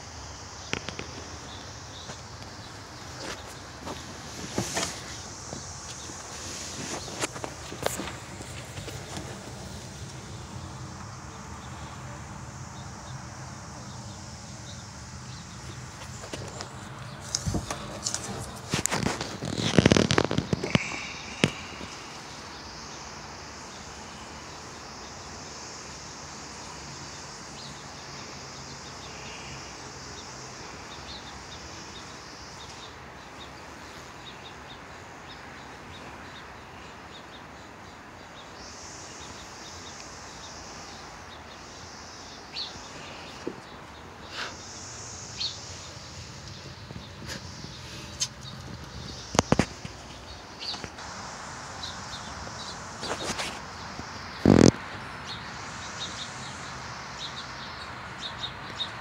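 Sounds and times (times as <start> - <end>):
faint high hiss: 0.0 - 58.9
outdoor background: 0.0 - 59.0
handling noise crackling and rustling: 2.1 - 10.2, 15.7 - 22.0.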